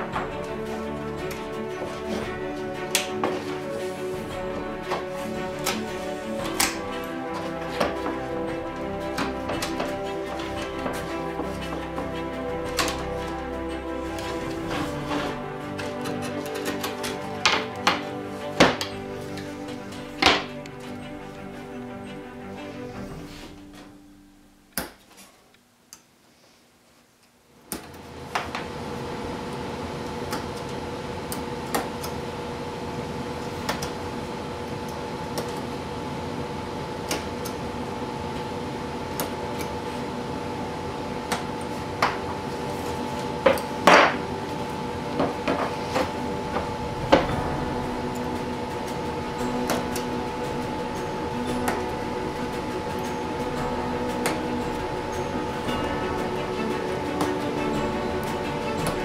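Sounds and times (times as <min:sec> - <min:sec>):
steady hum: 0:28.2 - 0:59.0.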